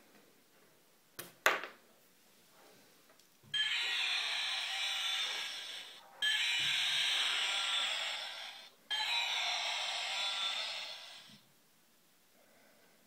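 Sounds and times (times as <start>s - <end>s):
toy dinosaur call from small speaker: 3.5s - 11.4s.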